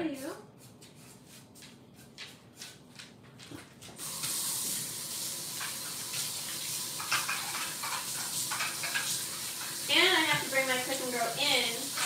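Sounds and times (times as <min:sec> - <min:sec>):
faucet water running into sink: 0:04.0 - 0:12.0.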